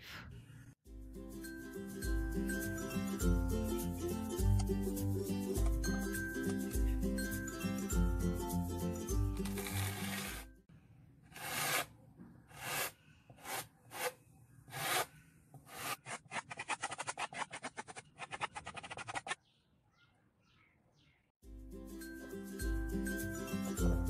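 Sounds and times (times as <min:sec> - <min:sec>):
scraper rubbing paint on canvas: 0:09.6 - 0:10.5, 0:11.3 - 0:11.9, 0:12.5 - 0:19.4.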